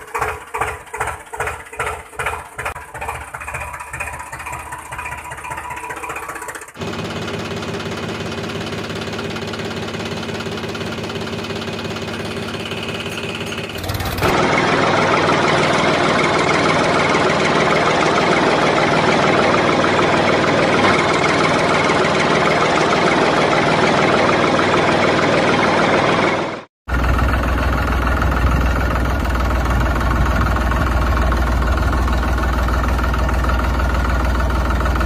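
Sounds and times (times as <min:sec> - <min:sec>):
tractor engine running: 0:00.0 - 0:35.0.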